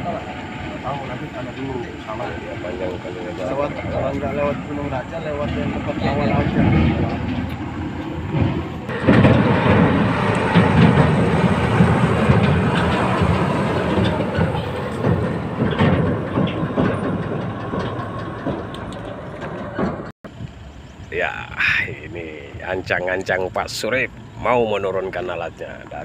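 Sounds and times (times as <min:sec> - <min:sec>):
rattling and clanking: 0:00.0 - 0:20.4
heavy vehicle engine: 0:00.0 - 0:26.0.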